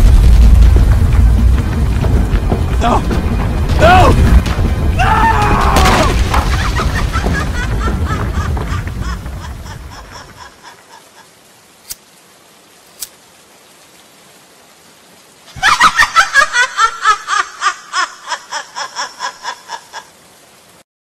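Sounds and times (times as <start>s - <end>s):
woman laughing sinisterly: 6.3s - 11.4s, 15.5s - 20.2s.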